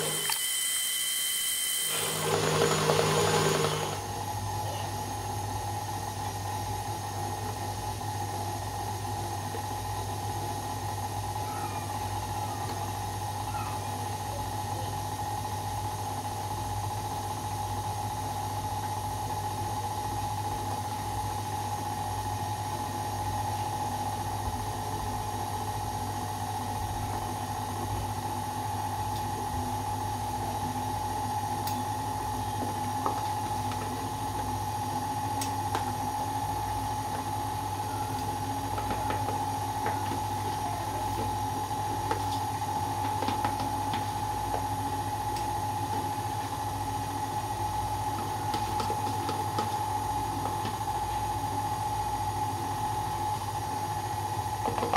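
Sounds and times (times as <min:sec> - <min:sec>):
stand mixer running: 0:00.0 - 0:04.5.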